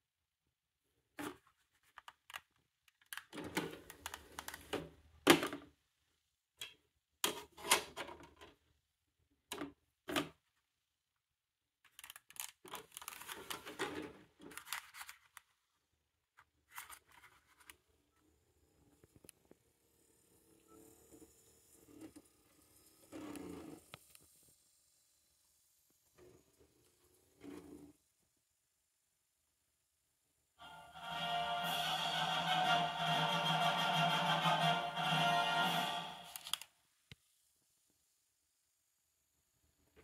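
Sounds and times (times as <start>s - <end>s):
plastic clicks and clattering: 1.2s - 5.7s, 11.8s - 15.6s.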